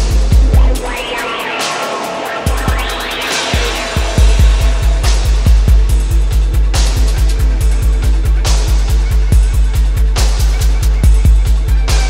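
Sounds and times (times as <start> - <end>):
kick drum: 0.0 - 1.0, 4.0 - 12.0
electronic dance music: 0.0 - 9.4
hi-hat ticks: 0.0 - 12.0.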